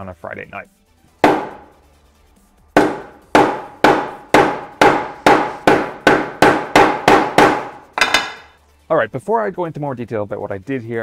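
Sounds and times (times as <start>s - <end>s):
hammer striking plastic slab: 1.2s - 1.7s, 2.8s - 8.5s.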